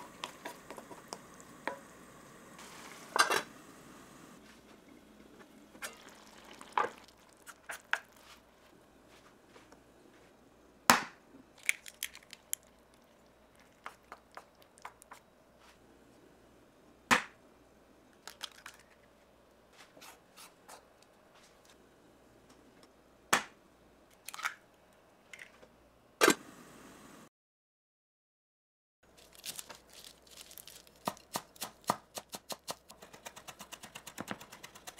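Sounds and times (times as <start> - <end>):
eggs cracking against a pan: 5.8 - 8.2, 11.6 - 15.2.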